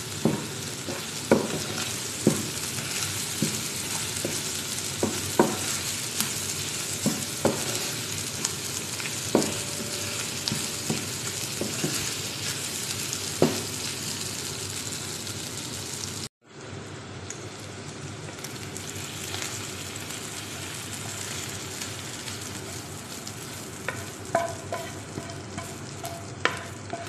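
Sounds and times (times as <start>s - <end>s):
food sizzling in a frying pan: 0.0s - 27.0s
wooden spatula knocking on pan: 0.2s - 2.6s, 3.4s - 4.4s, 5.0s - 5.7s, 7.0s - 7.9s, 9.3s - 12.1s, 13.4s - 13.7s, 23.9s - 27.0s.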